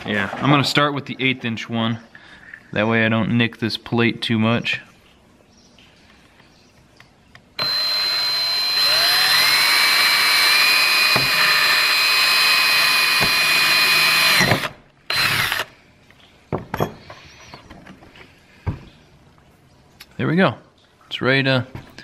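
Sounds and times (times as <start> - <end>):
power drill drilling metal: 7.6 - 15.7.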